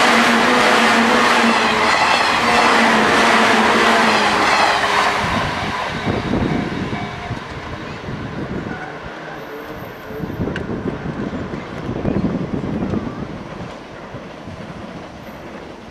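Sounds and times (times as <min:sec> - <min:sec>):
electric train rumbling away: 0:00.0 - 0:15.9
wind buffeting microphone: 0:01.5 - 0:08.8, 0:10.1 - 0:15.2.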